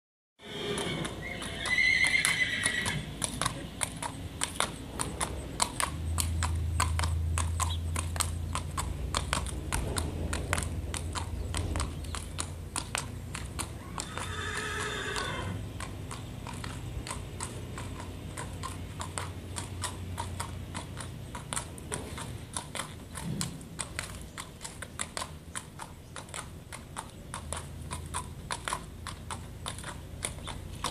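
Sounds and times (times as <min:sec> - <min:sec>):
horse whinnying: 0:00.4 - 0:03.2, 0:13.7 - 0:15.6
horse hooves on asphalt: 0:00.4 - 0:30.9.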